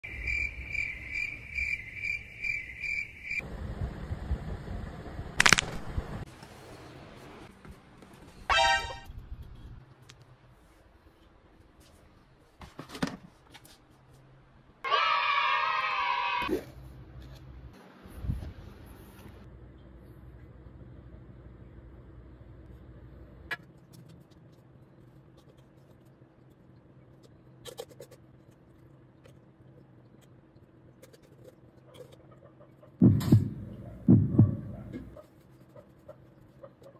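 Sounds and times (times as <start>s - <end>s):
crickets chirping: 0.0s - 3.4s
low steady hum: 16.5s - 36.6s.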